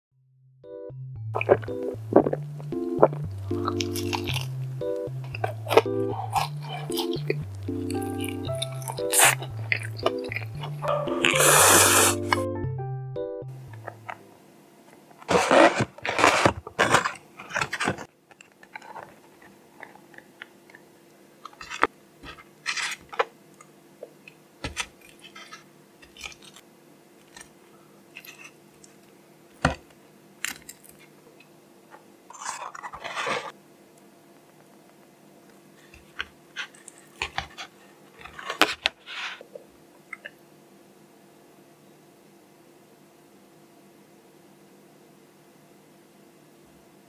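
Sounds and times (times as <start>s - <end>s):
fried chicken crackling: 3.4s - 12.4s
cardboard box rustling: 15.2s - 18.1s, 32.4s - 33.5s.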